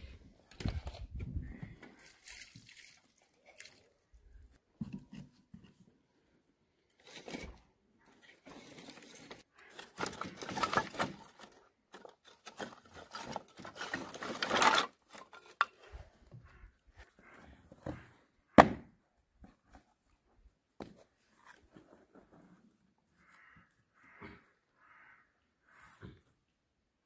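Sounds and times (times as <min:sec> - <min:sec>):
sharp wooden knock: 0:18.6 - 0:18.9.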